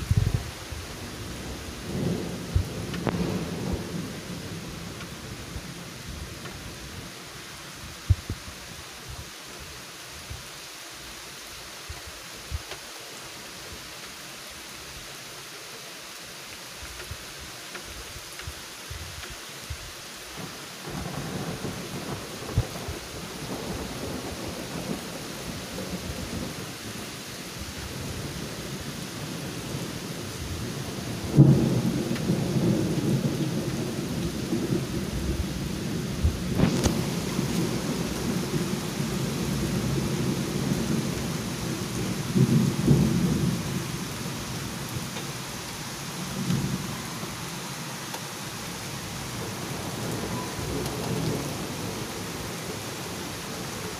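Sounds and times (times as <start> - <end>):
steady rain hiss: 0.0 - 53.9
rolling thunder: 1.3 - 4.9.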